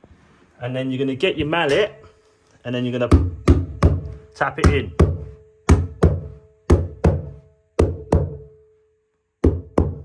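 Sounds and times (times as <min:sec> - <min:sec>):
mallet knocking on stair bolster: 0:03.1 - 0:08.5, 0:09.4 - 0:10.0.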